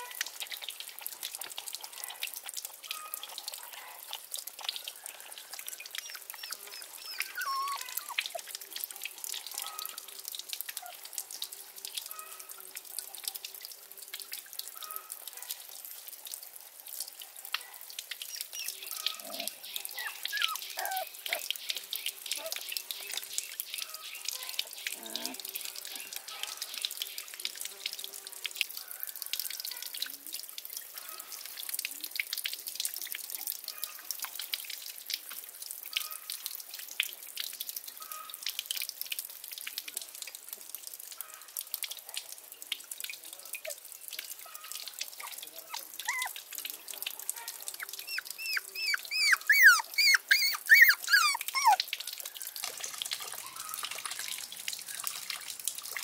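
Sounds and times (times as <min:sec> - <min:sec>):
water trickling into a pond: 0:00.0 - 0:56.0
puppy whining: 0:05.7 - 0:08.5, 0:18.2 - 0:21.5, 0:24.9 - 0:25.4, 0:45.2 - 0:46.4, 0:47.7 - 0:51.9.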